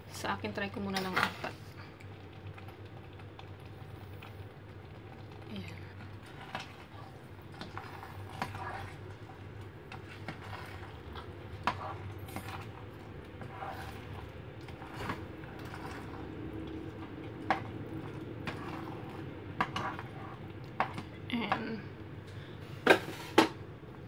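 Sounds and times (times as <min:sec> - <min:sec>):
low steady hum: 0:00.0 - 0:24.0
rice simmering: 0:00.0 - 0:24.0
spoon scraping a saucepan: 0:18.4 - 0:21.0.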